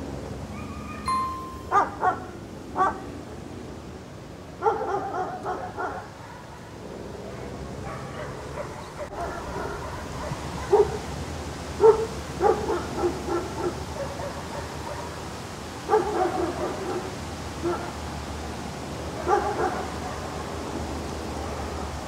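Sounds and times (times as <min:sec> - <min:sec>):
dog barking: 0:01.7 - 0:03.1, 0:04.6 - 0:11.1, 0:11.8 - 0:15.2, 0:15.9 - 0:18.0, 0:19.2 - 0:20.4.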